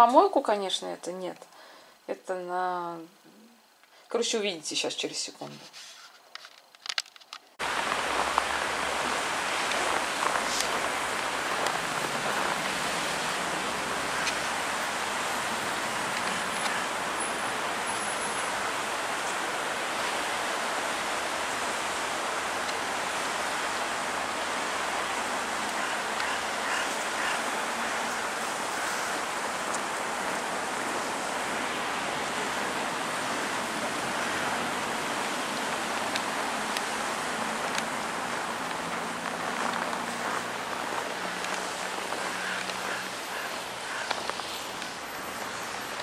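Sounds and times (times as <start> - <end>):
wind hiss: 7.6 - 46.0.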